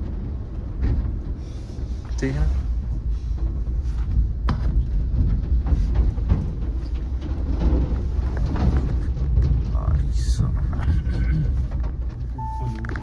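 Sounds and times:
knocks and rattles: 0.0 - 13.0
vehicle cabin rumble: 0.0 - 13.0.

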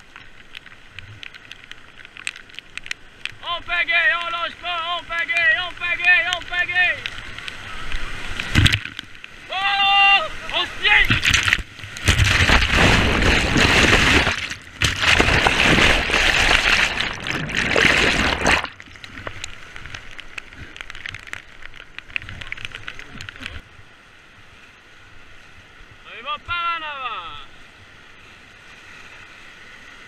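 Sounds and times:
small ticks: 0.0 - 3.4
water splashing over raft: 3.4 - 23.6
river rapids rushing: 9.4 - 18.8.

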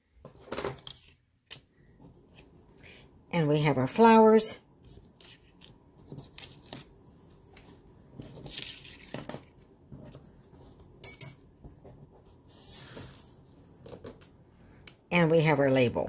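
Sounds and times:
paper rustle: 4.8 - 10.8.

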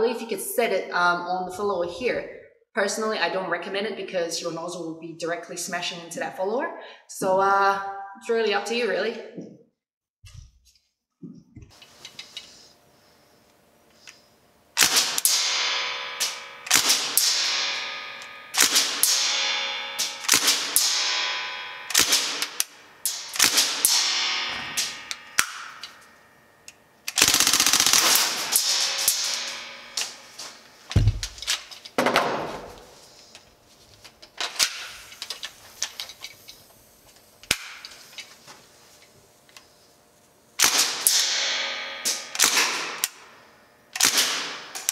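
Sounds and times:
airsoft gun firing bursts: 14.8 - 21.2, 21.9 - 25.6, 27.1 - 29.8, 44.0 - 44.7.

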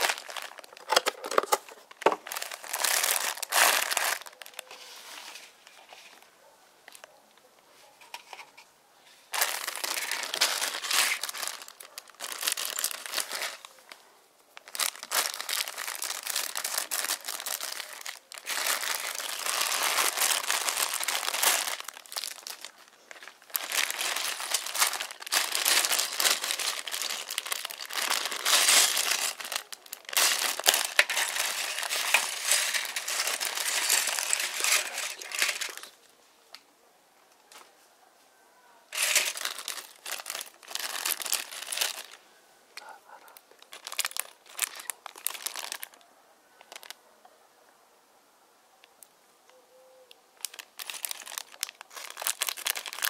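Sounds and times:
plastic bags crinkling: 0.0 - 6.2, 9.3 - 36.0, 38.9 - 42.2, 43.4 - 46.0, 46.7 - 47.0, 50.4 - 53.0.

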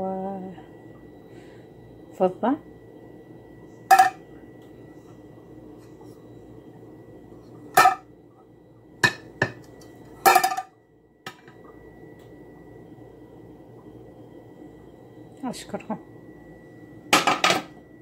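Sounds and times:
metal pan and lid clanking: 3.9 - 4.2, 7.8 - 8.0.

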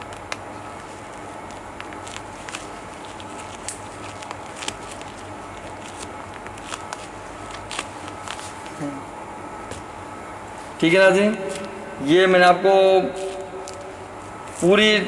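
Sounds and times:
room noise: 0.0 - 15.0.

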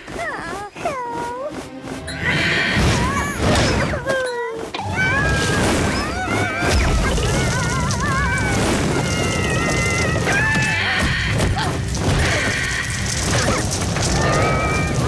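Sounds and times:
squealing cartoon voices: 2.1 - 15.0
low rumble of rolling egg: 6.9 - 15.0.

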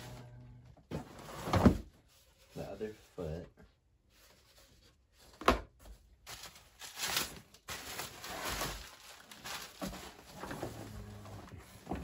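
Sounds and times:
rustling and crinkling: 4.1 - 12.0.

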